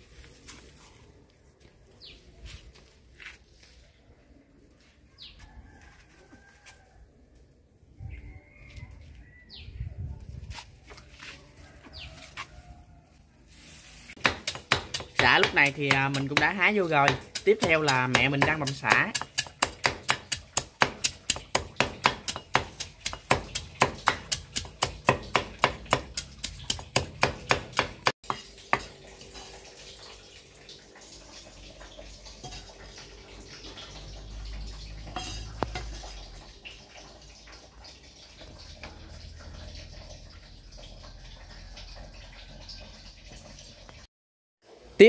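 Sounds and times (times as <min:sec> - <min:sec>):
cleaver chopping on wooden board: 0:14.2 - 0:28.1.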